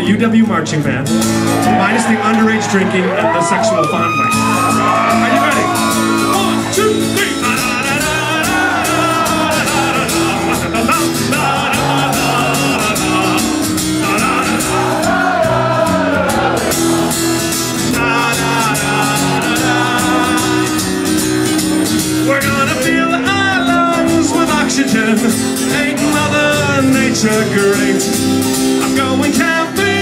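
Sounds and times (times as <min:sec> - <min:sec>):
strummed acoustic guitar: 0:00.0 - 0:30.0
voices singing wordless melody: 0:04.8 - 0:21.5, 0:22.2 - 0:28.1, 0:28.8 - 0:30.0.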